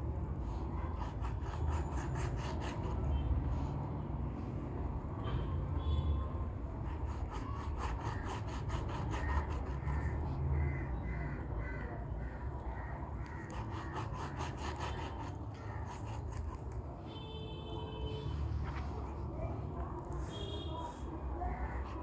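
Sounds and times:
knife sawing through meat: 0.8 - 3.2, 6.8 - 10.2, 13.2 - 16.8.

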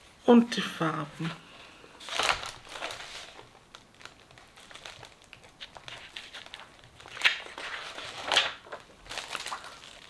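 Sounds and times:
light crinkling: 2.0 - 10.0
packaging rustling: 2.0 - 10.0.

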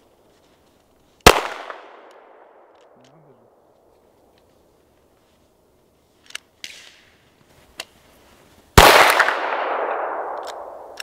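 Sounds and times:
pistol shot with echo: 1.2 - 2.6, 8.8 - 11.0
gun handling clicks: 1.2 - 3.0, 6.2 - 7.0, 10.0 - 11.0.

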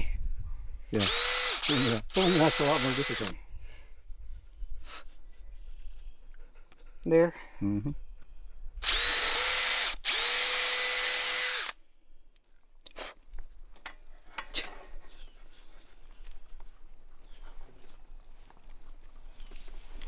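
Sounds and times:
drill motor whine: 1.0 - 3.3, 8.8 - 11.8.

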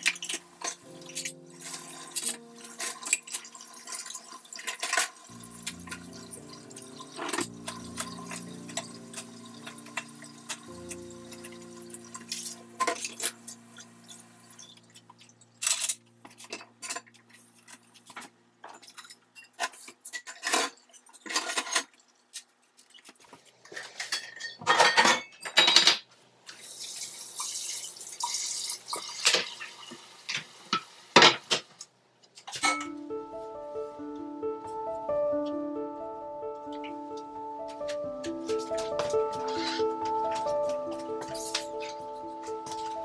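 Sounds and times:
water running: 0.0 - 15.6
dishes and cutlery clinking: 0.0 - 26.1, 32.5 - 33.0.

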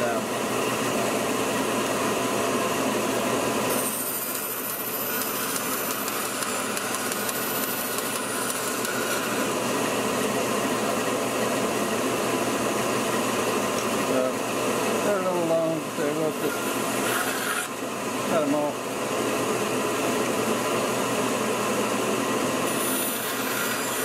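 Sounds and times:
dust collector vacuum running: 0.0 - 24.0
bandsaw running: 3.2 - 12.0, 14.0 - 18.5, 22.4 - 24.0
saw blade cutting wood: 3.7 - 9.7, 16.1 - 17.8, 22.6 - 24.0.

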